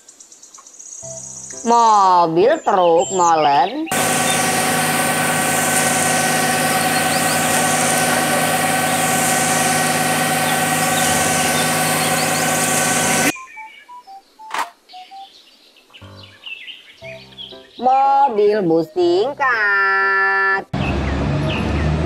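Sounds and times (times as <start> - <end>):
concrete pouring down chute: 3.9 - 13.3
diesel truck engine running: 3.9 - 13.3, 20.8 - 22.0.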